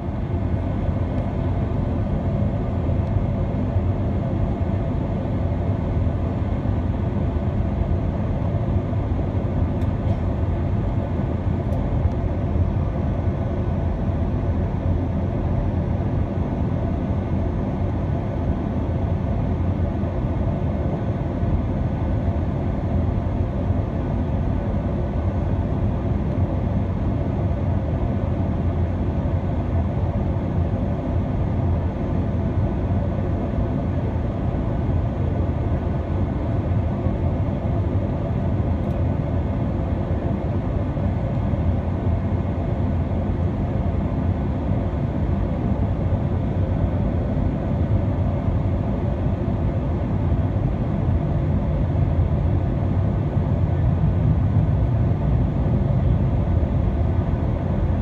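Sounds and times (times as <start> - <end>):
aircraft engines rumbling: 0.0 - 58.0.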